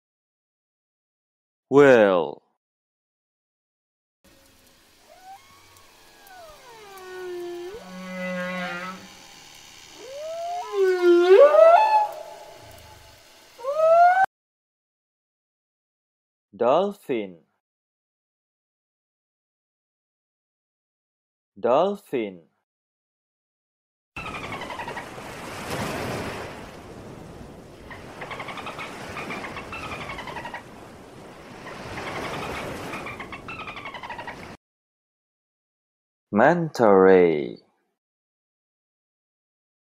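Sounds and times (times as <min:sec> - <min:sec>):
watery hiss: 0:04.3 - 0:13.8
humpback whale song: 0:04.3 - 0:14.3, 0:24.2 - 0:34.6
dolphin whistles: 0:05.1 - 0:09.1, 0:10.0 - 0:14.3, 0:28.3 - 0:30.7.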